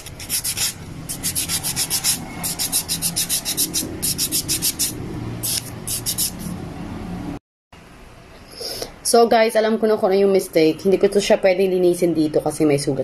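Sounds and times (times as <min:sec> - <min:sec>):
nail file rasping on fingernail: 0:00.0 - 0:06.5.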